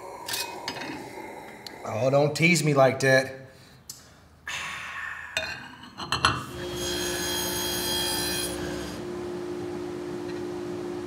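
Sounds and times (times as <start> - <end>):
table saw humming: 6.4 - 11.0.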